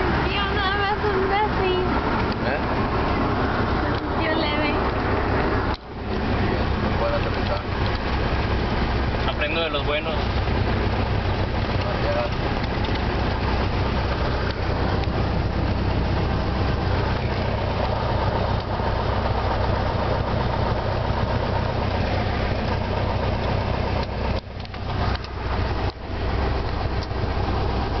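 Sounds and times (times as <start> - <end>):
propeller plane engine running: 0.0 - 28.0.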